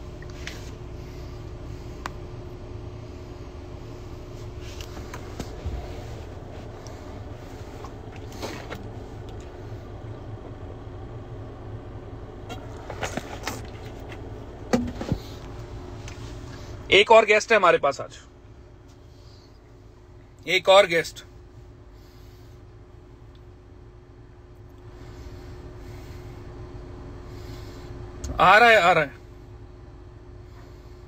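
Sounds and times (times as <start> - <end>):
car rumble inside cabin: 0.0 - 31.0
faint steady hum: 0.0 - 31.0
knocks and rustles: 12.5 - 15.4.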